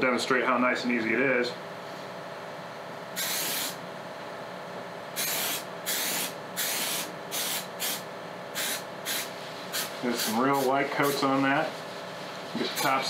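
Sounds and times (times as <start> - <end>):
aerosol can spraying: 3.2 - 3.8, 5.2 - 8.0, 8.6 - 10.7.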